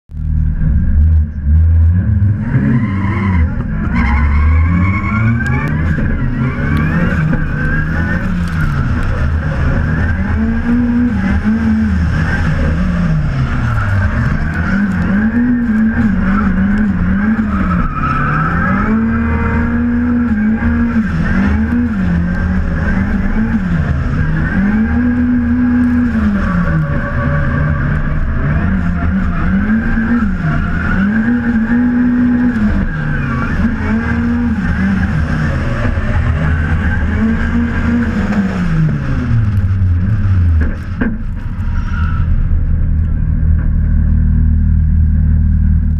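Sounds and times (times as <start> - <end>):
car engine revving: 0.1 - 45.9.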